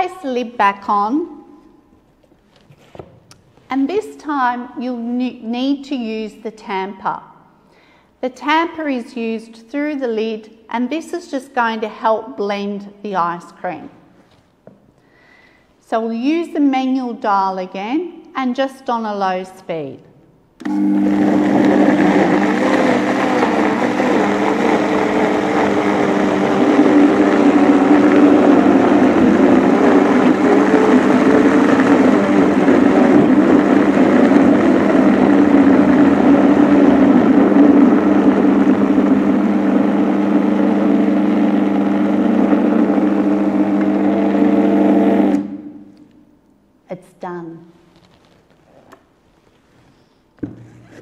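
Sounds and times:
blender motor hum: 20.6 - 45.8.

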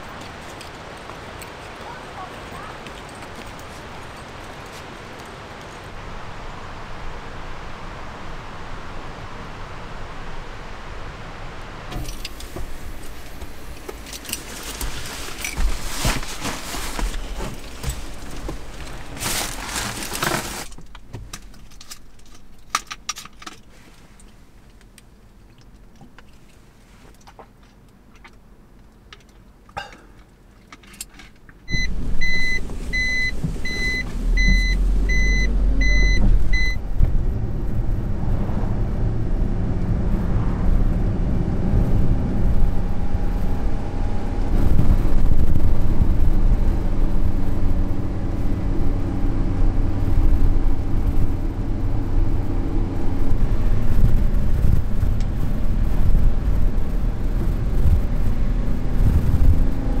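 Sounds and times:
engine and road noise: 0.0 - 60.0
electronic warning beep: 31.7 - 36.8.

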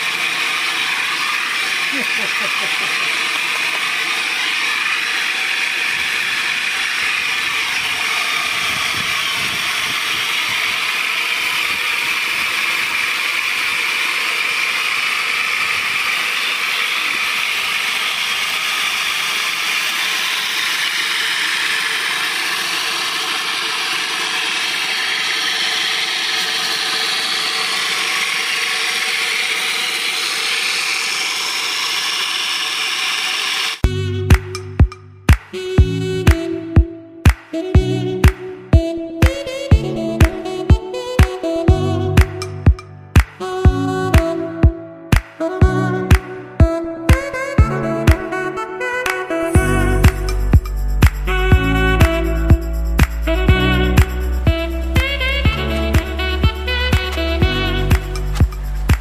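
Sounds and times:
mechanical rattle and whir: 0.0 - 33.8, 50.0 - 59.0.

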